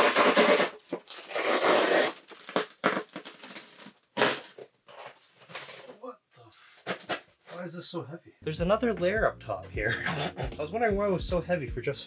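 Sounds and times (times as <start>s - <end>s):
polystyrene foam scraping: 0.0s - 6.0s.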